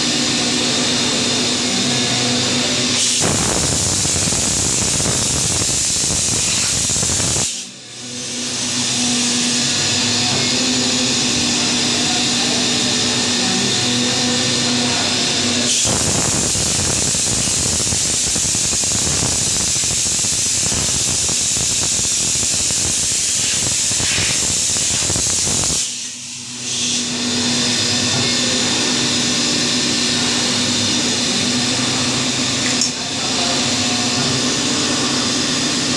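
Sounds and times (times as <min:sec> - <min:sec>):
milling machine hum: 0:00.0 - 0:35.9.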